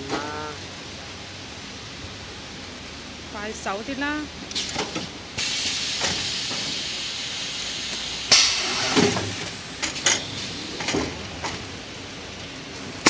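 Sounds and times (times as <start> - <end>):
packing machine hiss: 5.4 - 10.9.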